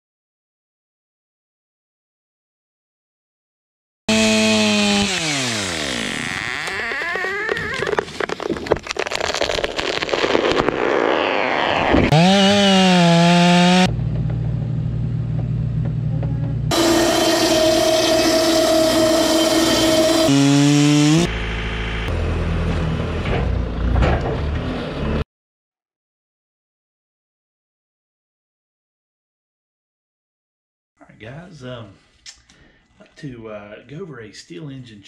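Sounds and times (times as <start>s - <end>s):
chainsaw revving and cutting: 4.1s - 6.4s, 11.3s - 13.9s, 16.7s - 21.3s
band sawmill humming: 4.1s - 6.5s, 12.1s - 23.1s
wood cracking: 4.2s - 13.8s.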